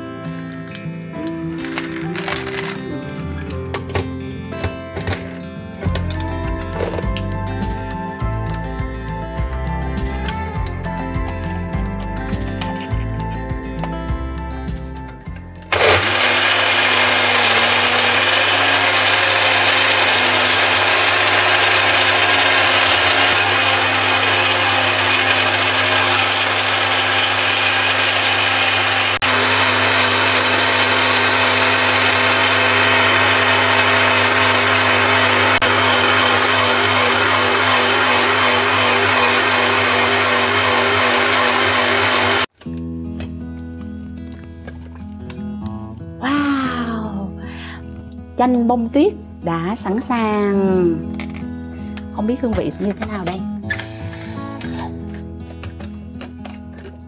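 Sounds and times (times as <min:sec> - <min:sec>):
electric blender crushing ice: 0:01.6 - 0:02.9, 0:15.7 - 0:42.5, 0:53.0 - 0:57.0.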